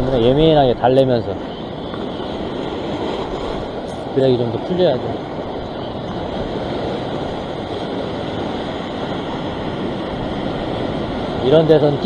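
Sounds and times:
wind on microphone: 0:00.0 - 0:12.0.

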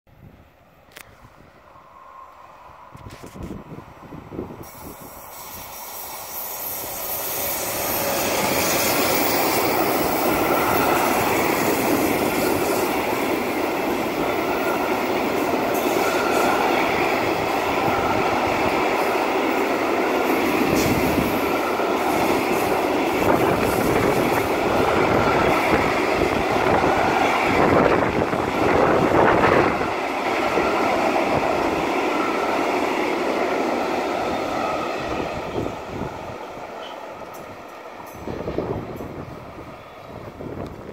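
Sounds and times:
steel wheels rolling on rails: 0:04.6 - 0:35.8.

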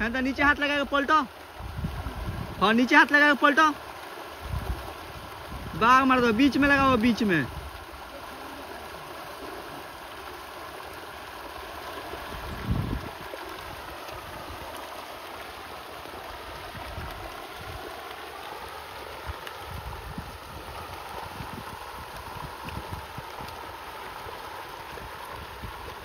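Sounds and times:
fish splashing at water surface: 0:06.6 - 0:26.0.

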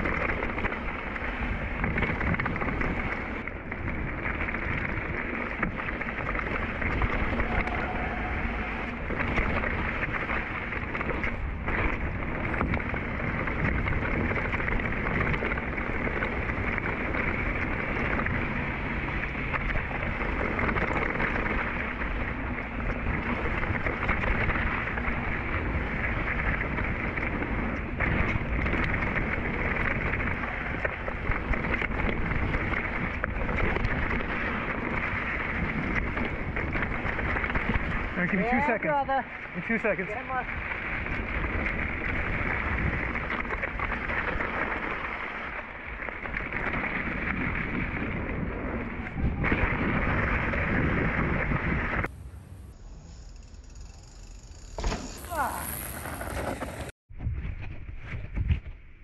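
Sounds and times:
wind on microphone: 0:00.0 - 0:53.0
bike tyres rolling on dirt: 0:00.0 - 0:59.0.

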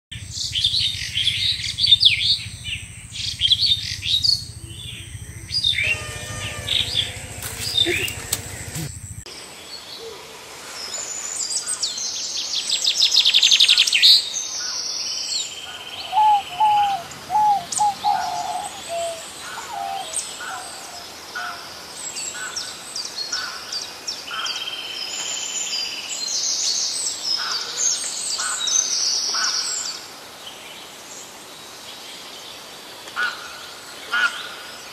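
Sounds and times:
low steady hum: 0:00.2 - 0:09.3, 0:15.9 - 0:21.0
birds chirping and trilling: 0:00.2 - 0:10.1, 0:14.6 - 0:22.8.

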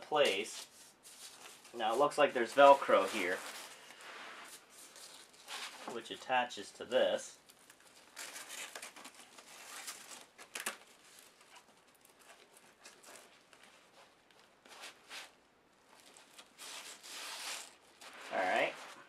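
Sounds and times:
fabric rustling and scraping: 0:00.3 - 0:06.2, 0:11.0 - 0:19.0.

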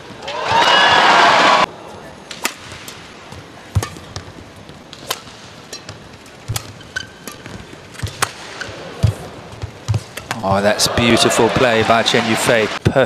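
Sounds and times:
rackets hitting shuttlecock: 0:02.2 - 0:10.6.

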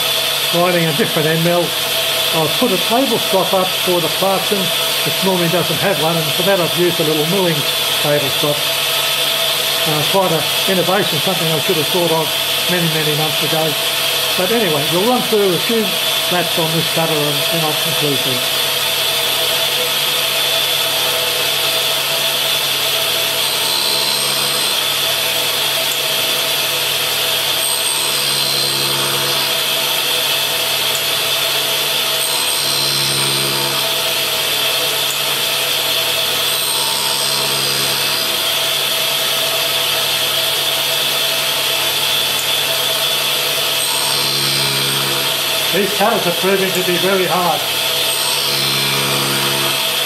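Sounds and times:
grinder whining: 0:00.0 - 0:19.5, 0:20.2 - 0:26.5, 0:27.3 - 0:50.0
cutter grinding on wheel: 0:00.1 - 0:18.6, 0:22.8 - 0:26.0, 0:27.4 - 0:40.0, 0:42.0 - 0:50.0.

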